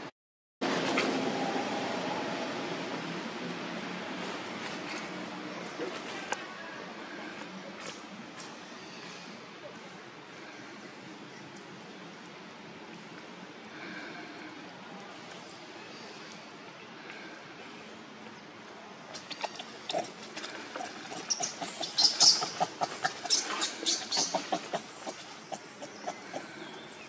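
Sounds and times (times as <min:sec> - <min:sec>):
monkeys scuffling on dry leaves: 0:19.2 - 0:26.4.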